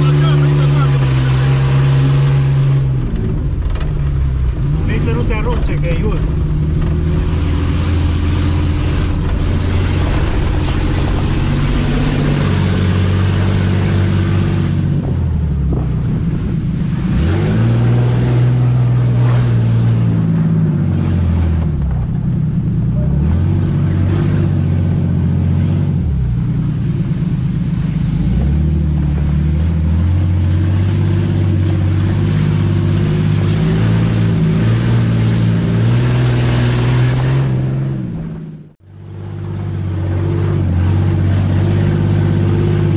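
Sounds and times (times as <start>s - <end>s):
off-road vehicle engine revving: 0.0s - 42.9s.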